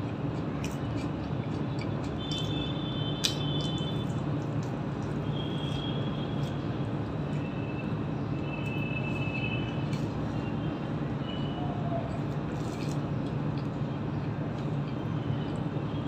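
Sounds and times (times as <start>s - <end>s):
person chewing: 0.0s - 6.6s, 8.7s - 10.4s, 12.1s - 15.7s
low background hum: 0.0s - 16.0s.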